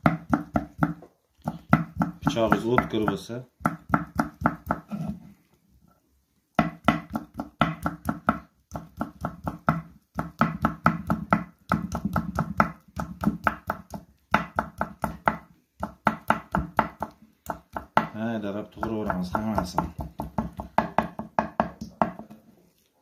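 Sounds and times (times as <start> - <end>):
knife chopping on wooden board: 0.0 - 5.2, 6.6 - 18.2.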